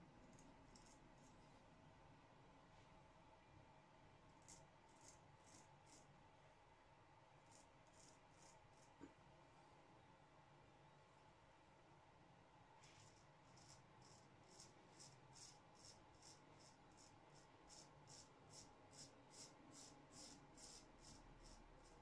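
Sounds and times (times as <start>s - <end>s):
razor scraping beard stubble: 0.3s - 1.3s, 4.4s - 6.1s, 7.4s - 8.9s, 13.0s - 22.0s.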